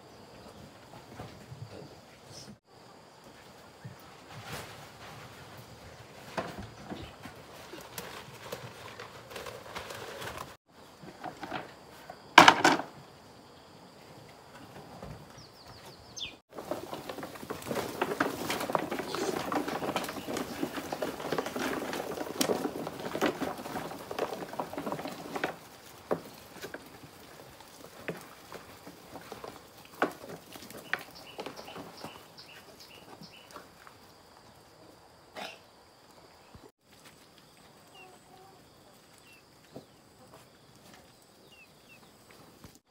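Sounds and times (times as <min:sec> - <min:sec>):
pigs chewing and rustling: 0:15.7 - 0:34.1.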